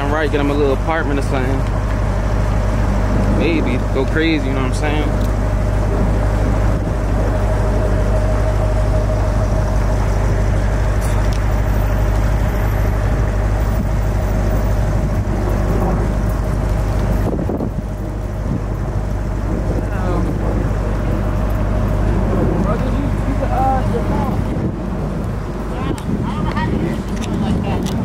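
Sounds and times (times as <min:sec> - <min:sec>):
low motor vehicle rumble: 0:00.0 - 0:28.0.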